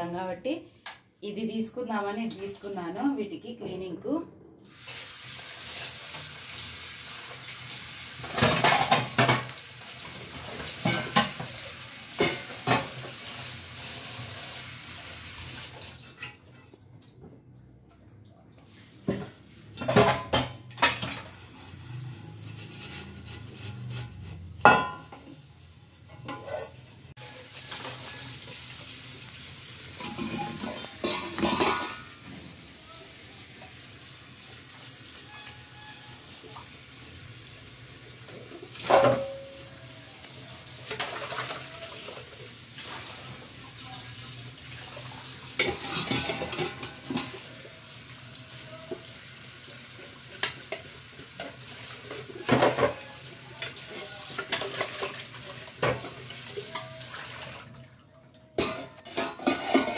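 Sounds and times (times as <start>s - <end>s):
water running and splashing: 4.7s - 16.3s, 25.2s - 59.9s
steel containers clanking: 7.4s - 13.5s, 26.0s - 28.8s, 29.8s - 32.6s, 38.2s - 39.8s, 45.5s - 47.7s, 58.5s - 59.9s.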